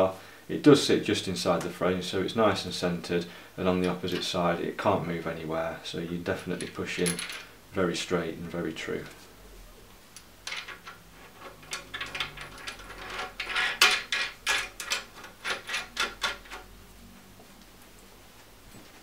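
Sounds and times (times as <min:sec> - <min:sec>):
metallic clicks and scrapes: 0:10.2 - 0:16.7.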